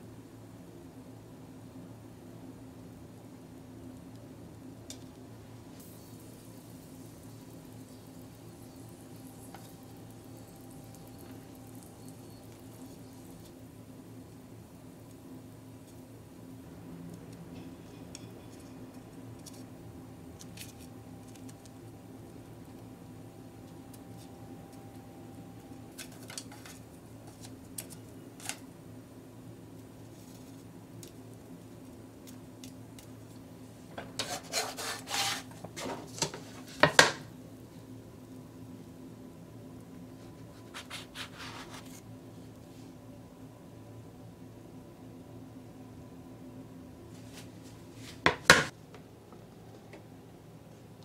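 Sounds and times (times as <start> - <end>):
steady low hum: 0.0 - 51.0
food sizzling in frying pan: 5.7 - 14.2.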